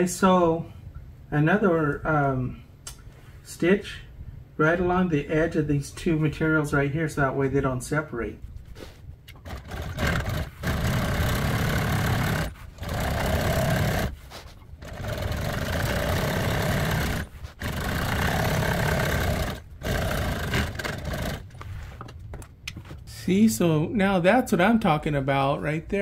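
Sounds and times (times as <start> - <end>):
sewing machine running: 9.4 - 14.2, 14.8 - 21.6.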